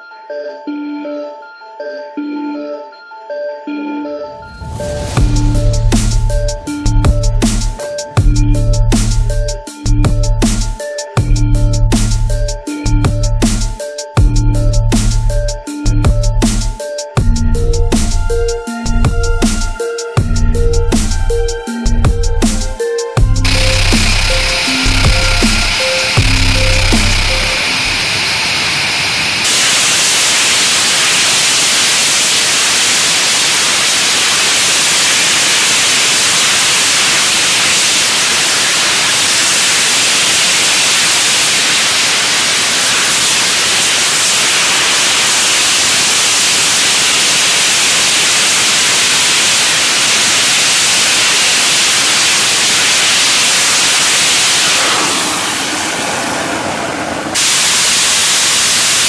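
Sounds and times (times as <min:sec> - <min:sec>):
rocket engine rushing hiss: 0:04.4 - 0:09.4, 0:22.4 - 0:59.0.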